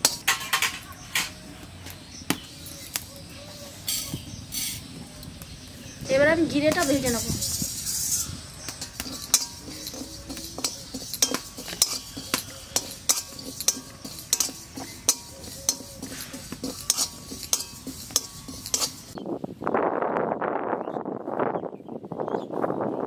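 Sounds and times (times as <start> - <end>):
metal spatula scraping a pan: 0.0 - 1.4, 3.7 - 4.9, 6.1 - 19.2.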